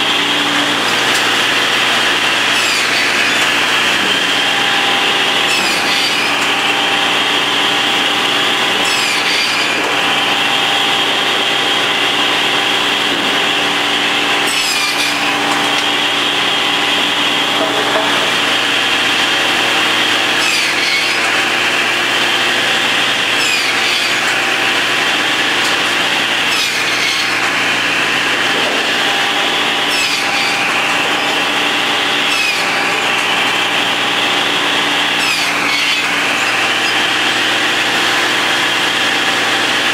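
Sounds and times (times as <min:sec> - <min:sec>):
mechanical hum: 0:00.0 - 0:39.9
saw scraping through boards: 0:00.0 - 0:39.9
sawmill saw whining: 0:00.0 - 0:39.9.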